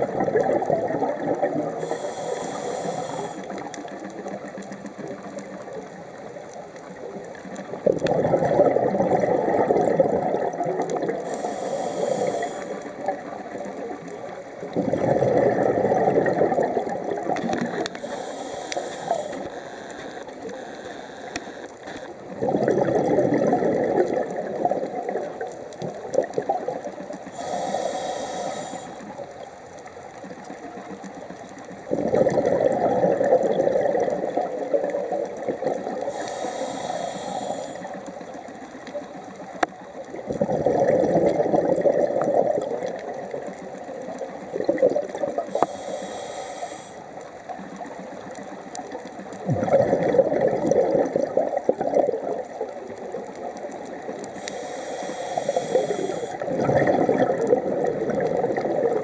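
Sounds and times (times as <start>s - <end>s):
regulator inhale hiss: 1.7s - 4.4s, 11.2s - 13.3s, 17.6s - 19.9s, 27.2s - 29.2s, 36.0s - 38.3s, 45.4s - 47.2s, 54.3s - 56.5s
rumbling exhaust bubbles: 7.8s - 11.2s, 49.4s - 52.2s, 56.4s - 59.0s.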